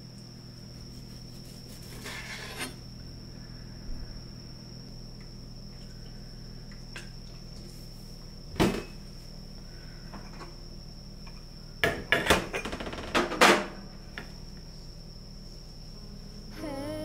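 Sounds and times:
faint high-pitched tone: 15.9 - 17.0.

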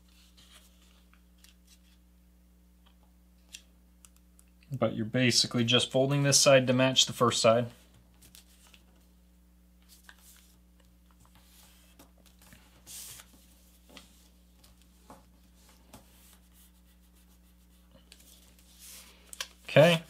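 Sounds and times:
paper rustling being folded: 0.0 - 2.0, 7.8 - 9.1, 9.8 - 20.0
low steady hum: 0.0 - 20.0.

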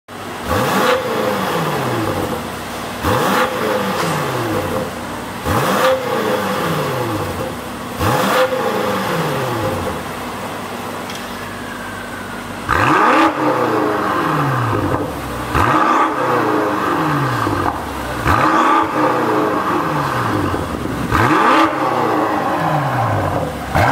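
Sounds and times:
car engine idling and revving: 0.1 - 23.9.

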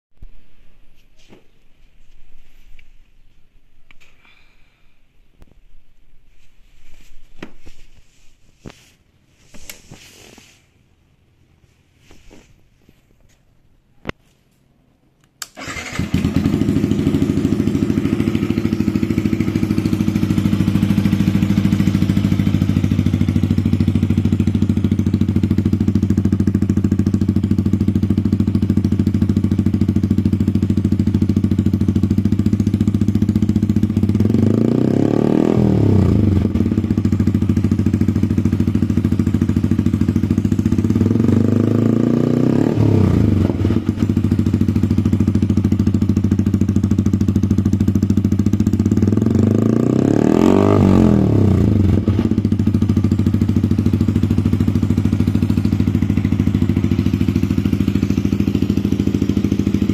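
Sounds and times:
motorcycle engine idling and revving: 15.6 - 59.9.

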